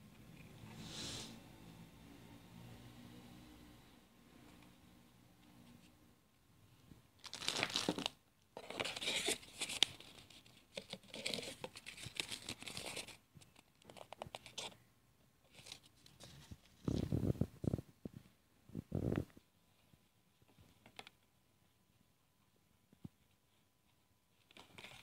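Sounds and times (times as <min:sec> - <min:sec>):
cardboard and paper rustling: 0:07.2 - 0:14.8, 0:24.3 - 0:25.0.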